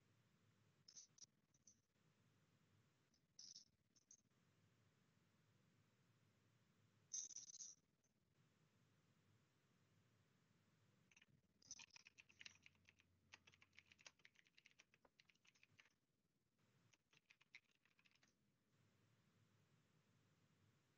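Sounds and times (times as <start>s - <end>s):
faint keyboard typing: 11.1s - 16.0s, 16.9s - 18.4s.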